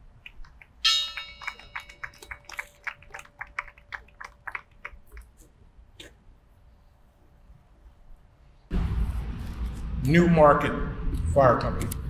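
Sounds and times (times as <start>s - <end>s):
bell ringing: 0.8s - 3.0s.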